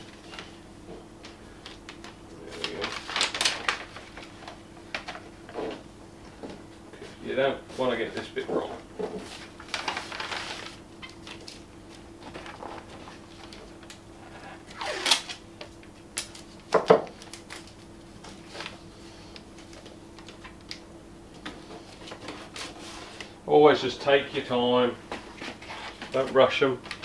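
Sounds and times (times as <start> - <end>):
paper rustling: 1.6 - 5.3, 9.2 - 11.6, 12.2 - 13.7
masking tape ripping off roll: 14.3 - 15.4
tape tearing snap: 14.7 - 15.4.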